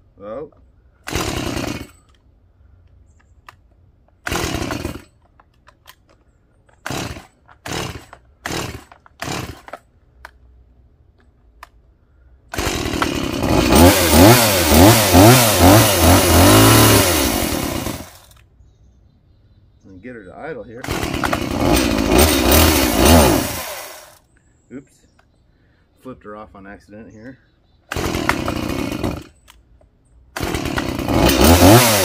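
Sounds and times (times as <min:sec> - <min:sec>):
chainsaw engine revving: 0:01.0 - 0:02.2, 0:04.2 - 0:05.2, 0:06.8 - 0:09.8, 0:12.5 - 0:18.4, 0:20.8 - 0:24.2, 0:27.9 - 0:29.4, 0:30.3 - 0:32.0
chainsaw starter cord pulls: 0:01.0 - 0:02.2, 0:03.4 - 0:10.4, 0:12.5 - 0:18.4, 0:20.8 - 0:24.2, 0:27.9 - 0:29.6, 0:30.4 - 0:32.0.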